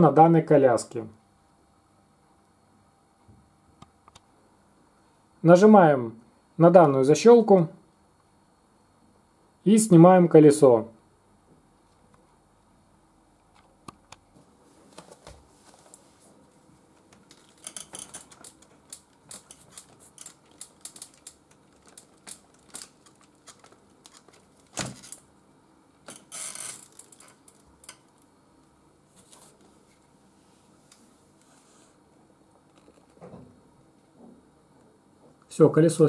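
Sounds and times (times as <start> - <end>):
plastic wheel clicking and rattling: 17.3 - 25.2.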